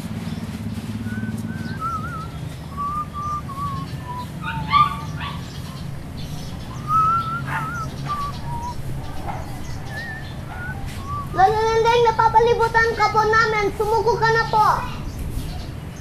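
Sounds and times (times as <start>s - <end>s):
steady low hum: 0.0s - 11.5s
person whistling a tune: 1.0s - 4.3s, 6.9s - 8.8s, 10.0s - 11.4s
animal calls: 1.0s - 13.2s.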